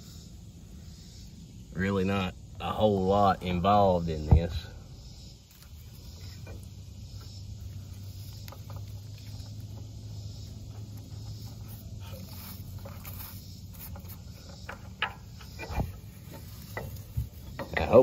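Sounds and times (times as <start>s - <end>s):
steady low hum: 0.0s - 18.0s
rubber belt rubbing and scraping: 5.5s - 18.0s
sharp clicks and knocks: 13.9s - 18.0s.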